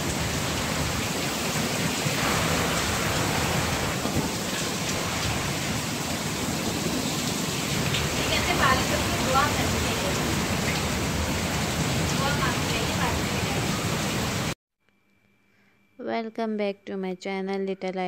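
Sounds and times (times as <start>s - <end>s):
heavy rain pouring: 0.0s - 14.6s.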